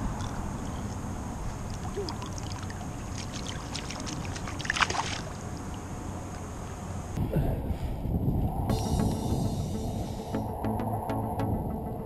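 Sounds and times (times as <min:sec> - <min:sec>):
water lapping against boat hull: 0:01.4 - 0:06.5
small splashes: 0:01.5 - 0:06.5
low rumble: 0:07.2 - 0:12.0.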